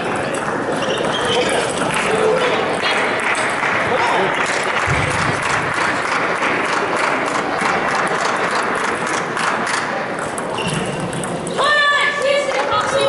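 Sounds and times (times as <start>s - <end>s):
crowd applauding: 1.8s - 9.6s.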